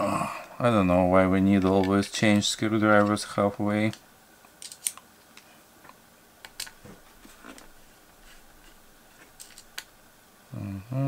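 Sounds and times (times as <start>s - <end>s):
man humming hmm: 0.0s - 0.6s, 10.5s - 11.0s.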